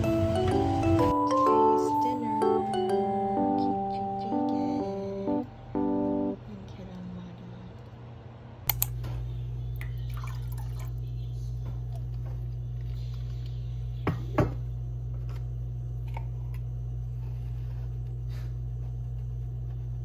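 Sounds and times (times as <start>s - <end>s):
gas burner low hum: 0.0s - 20.0s.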